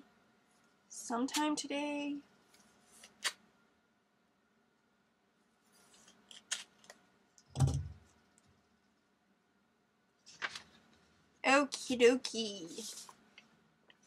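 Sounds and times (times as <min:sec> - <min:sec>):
dull thump: 0:07.6 - 0:08.0
paper envelope crinkling: 0:10.3 - 0:10.8.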